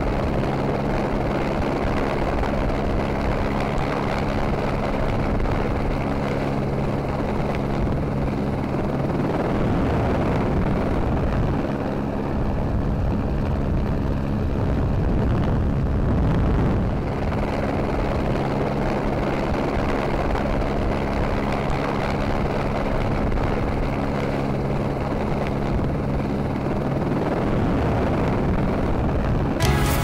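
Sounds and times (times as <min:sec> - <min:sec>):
helicopter engine and rotor drone: 0:00.0 - 0:29.6.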